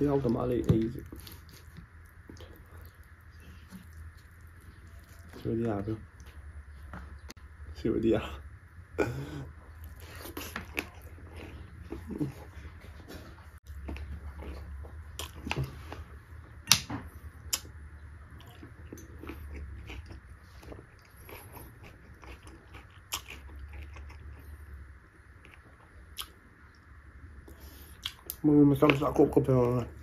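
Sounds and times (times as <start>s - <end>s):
person chewing food: 0.0s - 7.4s, 9.0s - 30.0s.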